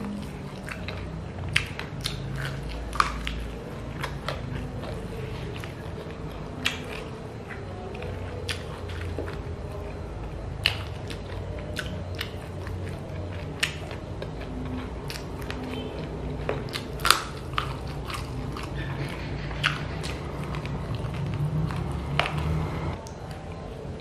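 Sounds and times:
chewing and biting food: 0.0s - 24.0s
wet mouth clicks and smacks: 0.5s - 4.4s.

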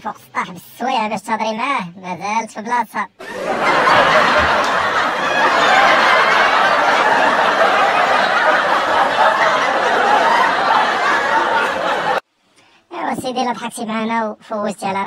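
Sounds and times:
crowd laughing: 3.2s - 12.2s.

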